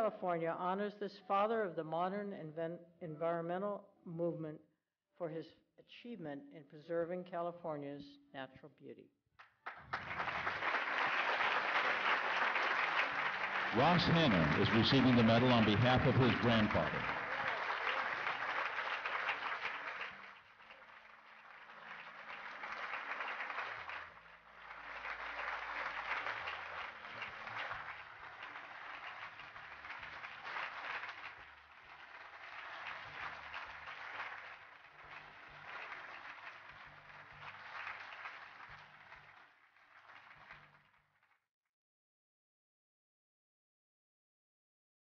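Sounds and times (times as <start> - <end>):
audience applauding: 9.4 - 41.0.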